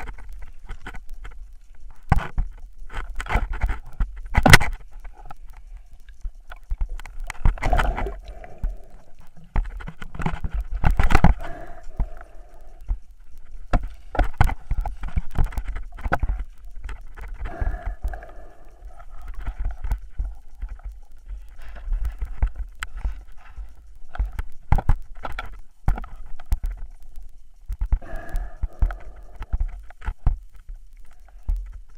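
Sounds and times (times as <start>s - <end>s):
low underwater rumble: 3.8s - 24.6s.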